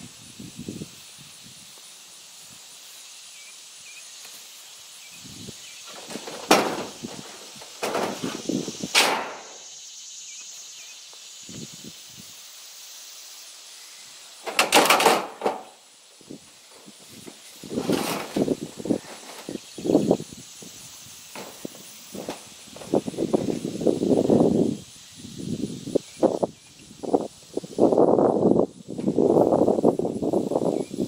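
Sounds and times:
steel panels clattering: 0:05.8 - 0:09.6, 0:14.4 - 0:15.8, 0:16.7 - 0:19.6, 0:21.3 - 0:23.4.

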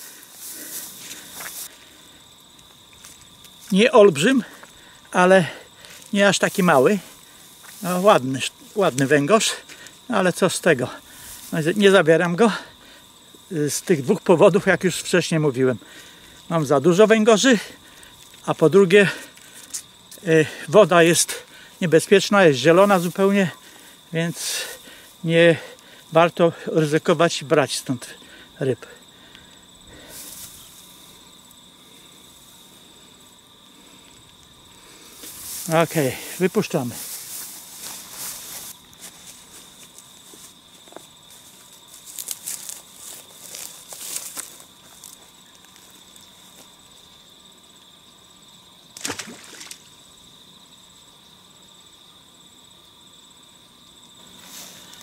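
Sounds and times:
short rustling hiss: 0:00.0 - 0:03.8, 0:04.4 - 0:10.1, 0:10.8 - 0:12.0, 0:22.7 - 0:26.1, 0:29.1 - 0:45.2, 0:54.3 - 0:55.0
high-pitched insect chirring: 0:00.0 - 0:55.0.

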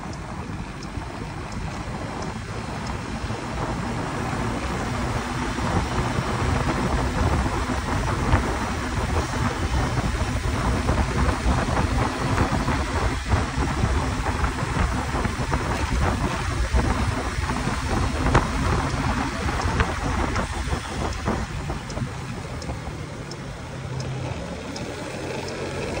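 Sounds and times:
bike tyre road noise: 0:00.0 - 0:26.0
faint ticking: 0:00.0 - 0:26.0
wind buffeting microphone: 0:00.0 - 0:26.0.

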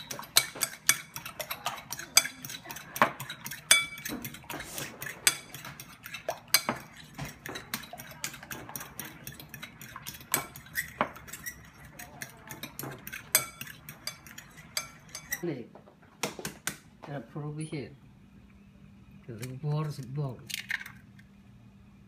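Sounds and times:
fork clinking against a bowl: 0:00.0 - 0:15.4.

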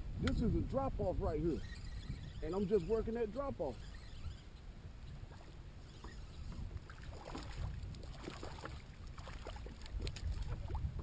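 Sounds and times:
wind rumble on microphone: 0:00.0 - 0:11.0
water splashing against hull: 0:05.2 - 0:11.0.

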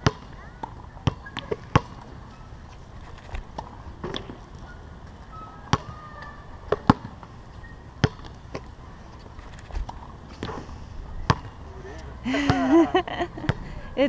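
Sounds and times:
basketball bouncing on hard court: 0:00.0 - 0:02.1, 0:08.0 - 0:08.4.

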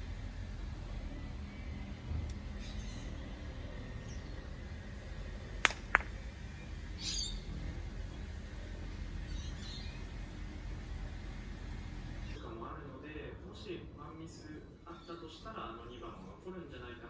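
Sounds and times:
ball knocking into ball: 0:05.6 - 0:06.2
stick striking plastic ball: 0:05.6 - 0:06.2.

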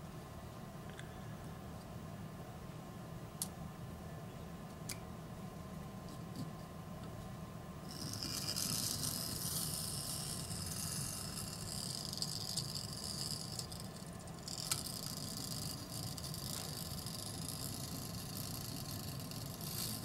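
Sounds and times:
small motor whirring: 0:07.8 - 0:20.0.

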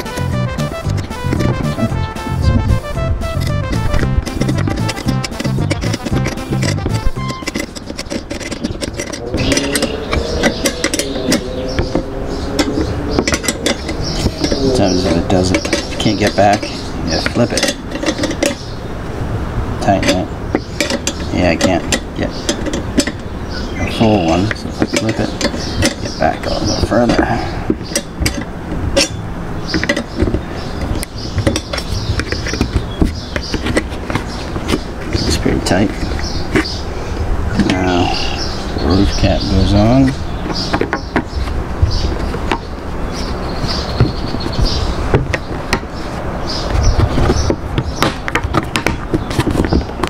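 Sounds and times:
steady low rumble: 0:00.0 - 0:25.0
wrench clicking on metal: 0:03.4 - 0:12.0
wrench clicking against metal bolts: 0:03.4 - 0:18.7, 0:19.9 - 0:23.3, 0:24.1 - 0:27.2, 0:27.8 - 0:33.8.

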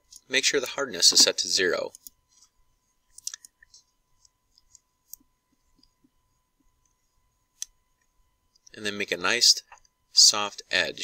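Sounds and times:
computer mouse clicks: 0:03.1 - 0:05.2.

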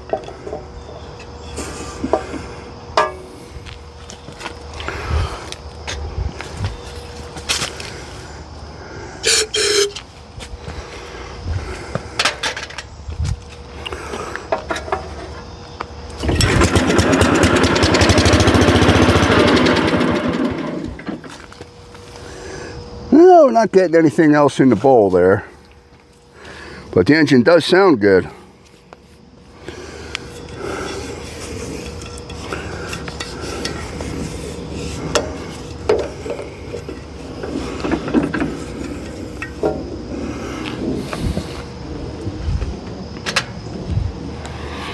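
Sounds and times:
steady low hum: 0:00.0 - 0:44.9
small engine running: 0:16.2 - 0:21.4.

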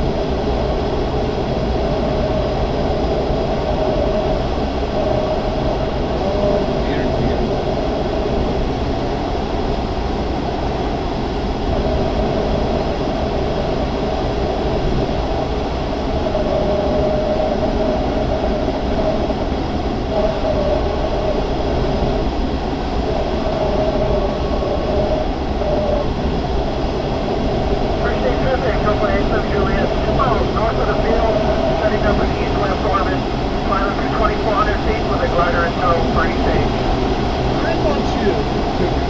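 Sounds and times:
low rumble: 0:00.0 - 0:39.0
cockpit airflow rush: 0:14.8 - 0:39.0.

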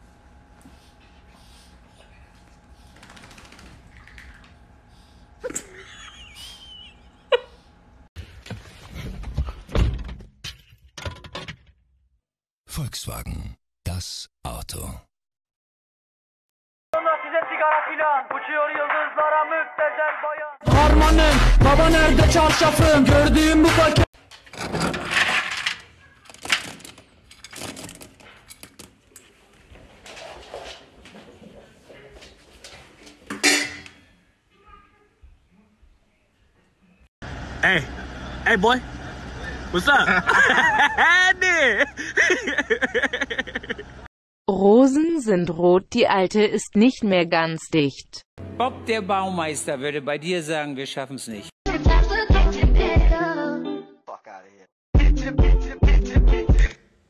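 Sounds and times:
puppy shaking fur: 0:02.9 - 0:04.0.

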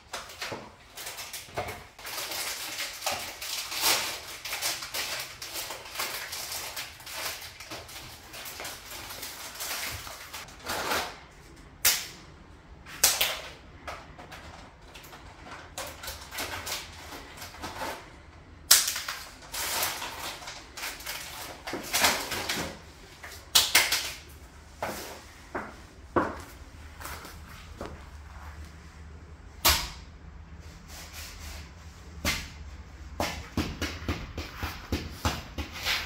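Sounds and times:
plastic wrapper crinkling: 0:00.1 - 0:10.7, 0:18.8 - 0:22.8.

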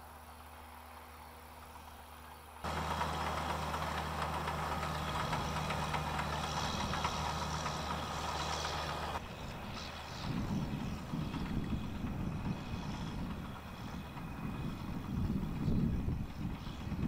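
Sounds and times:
tractor engine running: 0:00.0 - 0:17.0
digger rattling clatter: 0:02.6 - 0:09.2.

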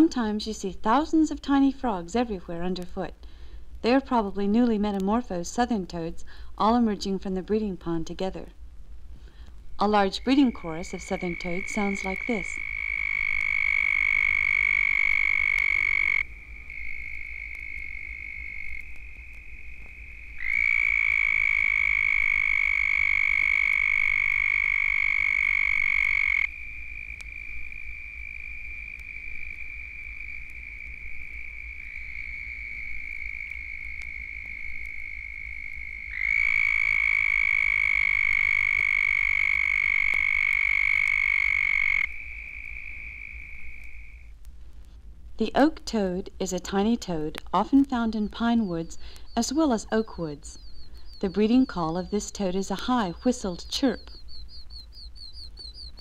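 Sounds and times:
loud toad trills: 0:09.8 - 0:44.3
toad chorus trilling: 0:09.8 - 0:44.3, 0:46.4 - 0:56.0.

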